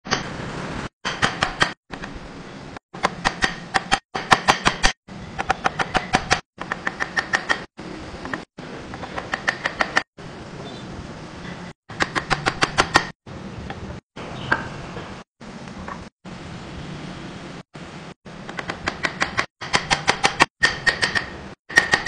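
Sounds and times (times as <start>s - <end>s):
hammer striking chisel into wood: 1.0s - 1.8s, 3.0s - 7.7s, 18.6s - 22.0s.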